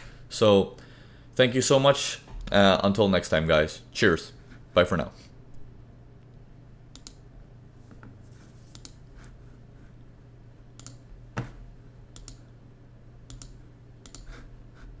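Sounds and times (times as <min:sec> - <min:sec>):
faint low hum: 0:00.0 - 0:15.0
mouse and keyboard clicks: 0:08.7 - 0:09.0, 0:10.8 - 0:11.0, 0:12.2 - 0:12.4, 0:13.3 - 0:14.3.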